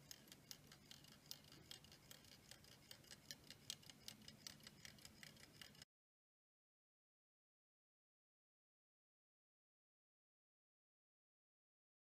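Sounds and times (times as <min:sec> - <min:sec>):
pocket watch ticking: 0:00.0 - 0:05.9.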